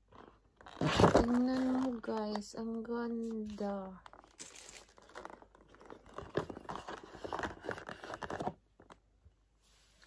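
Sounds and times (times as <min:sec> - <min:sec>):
cardboard box crinkling and scraping: 0:00.1 - 0:02.4, 0:03.2 - 0:08.6.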